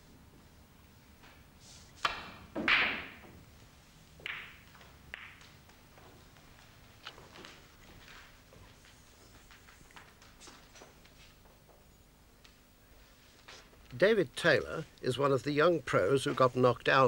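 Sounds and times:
cue striking ball: 2.0s - 3.4s, 4.2s - 5.5s
snooker balls clacking: 2.0s - 3.4s, 4.2s - 5.8s.

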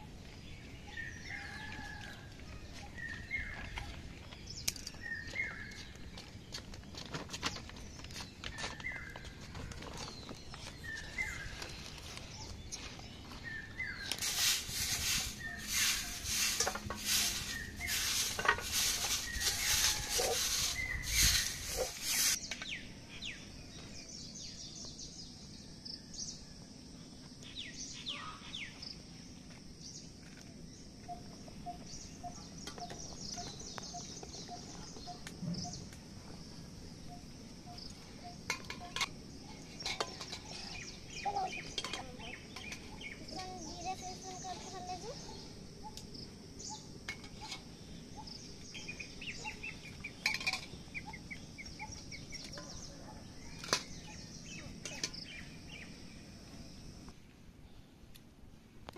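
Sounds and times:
birds chirping: 0.0s - 26.5s, 27.4s - 57.9s
steady high hiss: 11.1s - 25.5s.

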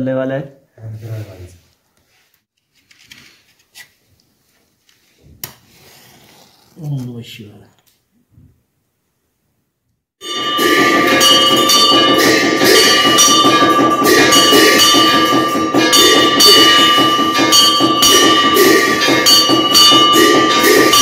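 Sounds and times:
temple bells ringing: 10.2s - 21.0s.

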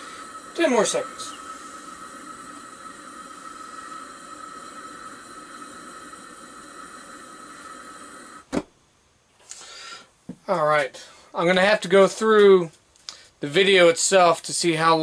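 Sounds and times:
faint high whistle: 0.0s - 7.5s
gas burner hissing: 0.0s - 8.6s.

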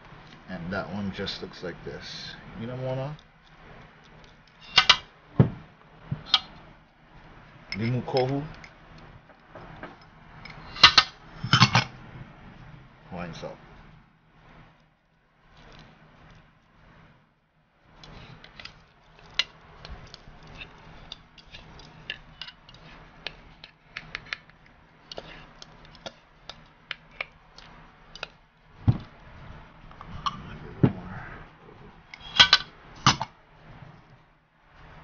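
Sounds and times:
chopsticks clicking against a bowl: 18.0s - 28.4s.

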